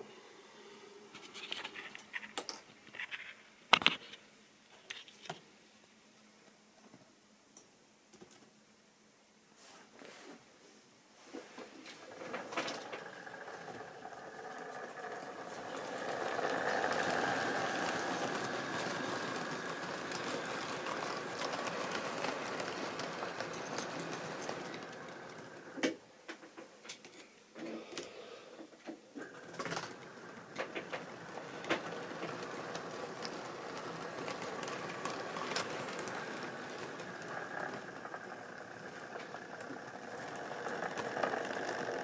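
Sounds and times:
model train wheels clicking: 0:11.9 - 0:27.1, 0:29.2 - 0:42.0.

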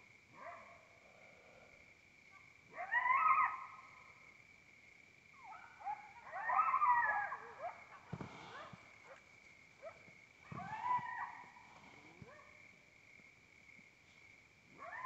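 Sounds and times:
coyotes yipping and howling: 0:00.3 - 0:01.7, 0:02.3 - 0:04.4, 0:05.3 - 0:12.8, 0:14.7 - 0:15.0.

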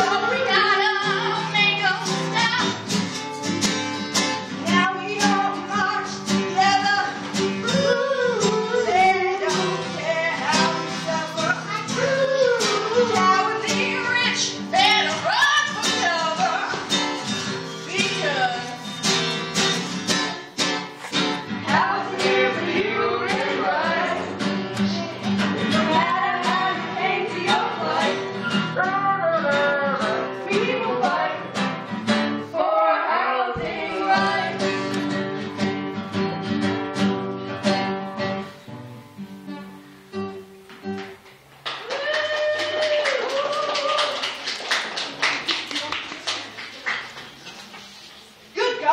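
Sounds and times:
strummed acoustic guitar: 0:00.0 - 0:32.7, 0:33.5 - 0:41.5
person singing: 0:04.6 - 0:16.9, 0:21.6 - 0:31.5.

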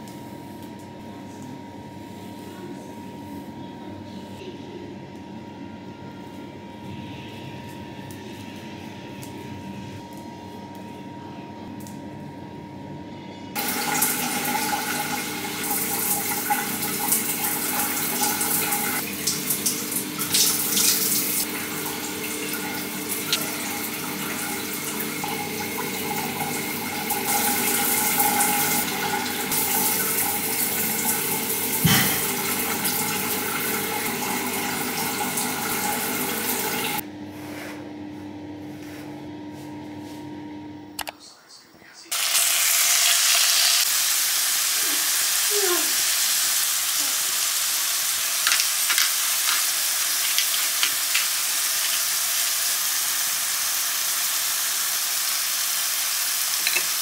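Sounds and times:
shower water running: 0:13.6 - 0:37.0, 0:42.1 - 0:57.0.

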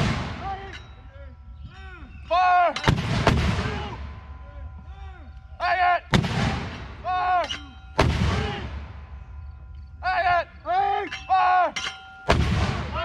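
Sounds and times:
mortar firing with echo: 0:00.0 - 0:00.6, 0:02.8 - 0:04.2, 0:06.1 - 0:07.1, 0:08.0 - 0:09.2, 0:12.3 - 0:13.0
crew shouting commands: 0:00.4 - 0:02.9, 0:03.6 - 0:06.1, 0:07.0 - 0:08.7, 0:10.0 - 0:12.2.

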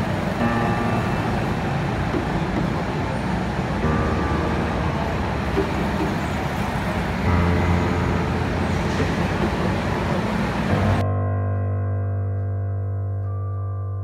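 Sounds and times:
go-kart engines din: 0:00.0 - 0:11.0
low hum: 0:00.0 - 0:13.4.

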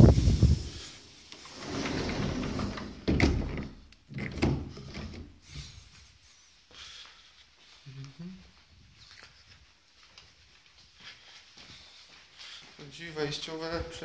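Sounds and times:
door opening and shutting: 0:01.4 - 0:05.4.

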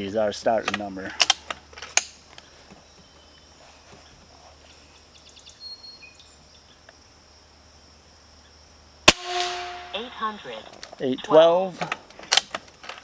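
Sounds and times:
high-pitched insect drone: 0:09.3 - 0:11.7.

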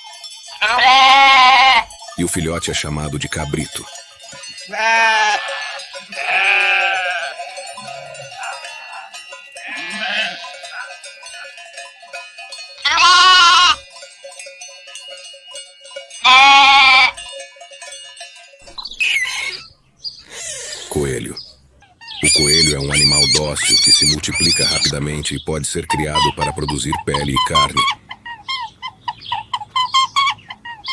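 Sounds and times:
goats bleating: 0:00.6 - 0:02.0, 0:04.4 - 0:11.6, 0:12.8 - 0:13.8, 0:16.2 - 0:17.2, 0:22.2 - 0:28.0.

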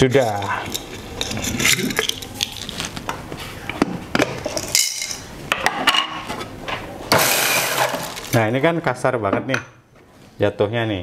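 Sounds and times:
glass jar of beans clinking: 0:04.5 - 0:05.3.

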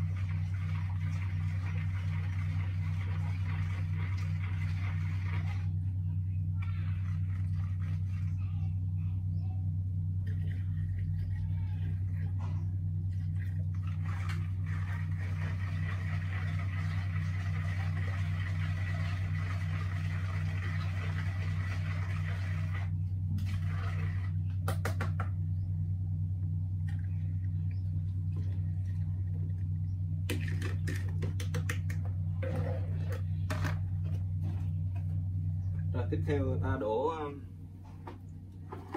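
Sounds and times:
liquid pouring and splashing: 0:00.0 - 0:05.7, 0:13.2 - 0:24.4
low mechanical hum: 0:00.0 - 0:38.9.

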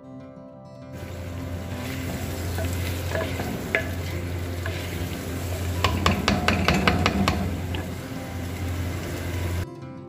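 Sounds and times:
spoon knocking on clay pot: 0:01.0 - 0:08.2
vegetables sizzling in pot: 0:01.0 - 0:09.6
wooden spoon stirring: 0:01.0 - 0:09.6.

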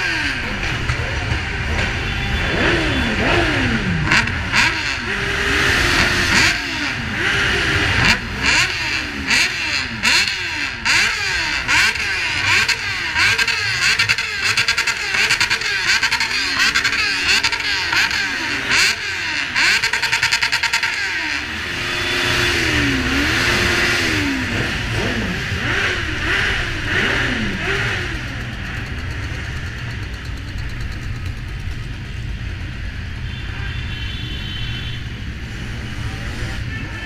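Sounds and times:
motorcycle engines revving: 0:00.0 - 0:37.0.

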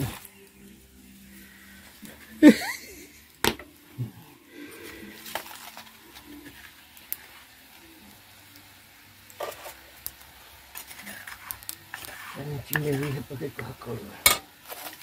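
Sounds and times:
metal spoon scraping in mortar: 0:09.4 - 0:09.8, 0:10.8 - 0:13.3.

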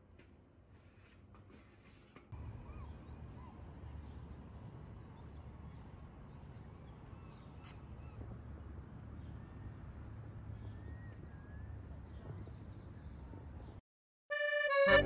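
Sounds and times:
distant bird calls: 0:02.4 - 0:08.2.

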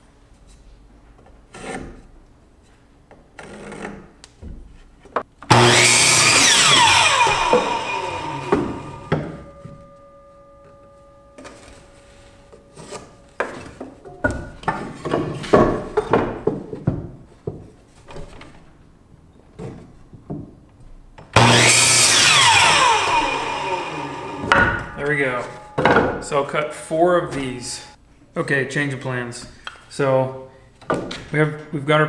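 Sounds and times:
saw blade whine winding down: 0:05.5 - 0:13.1, 0:21.4 - 0:25.8
miter saw cutting board: 0:05.5 - 0:13.7, 0:21.4 - 0:25.9
wooden boards knocking and scraping: 0:13.4 - 0:18.6, 0:24.4 - 0:25.0.

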